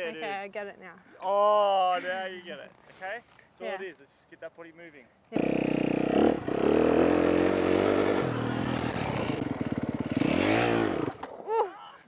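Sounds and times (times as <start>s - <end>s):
dirt bike engine running: 5.4s - 11.2s.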